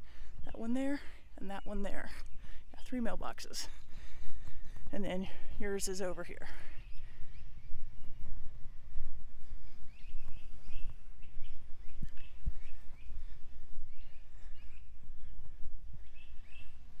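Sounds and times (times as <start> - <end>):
birds chirping: 0.0 - 17.0
low rumbling microphone noise: 0.0 - 17.0.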